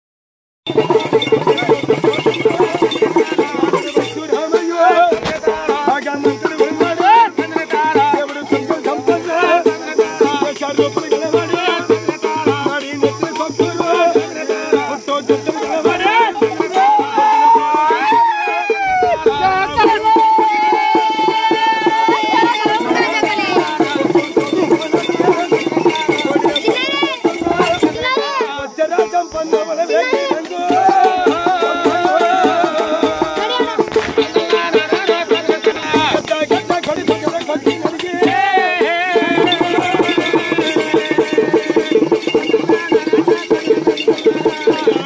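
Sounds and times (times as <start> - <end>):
quick busy drum beats: 0.6 - 45.0
voice crying out: 16.8 - 22.5.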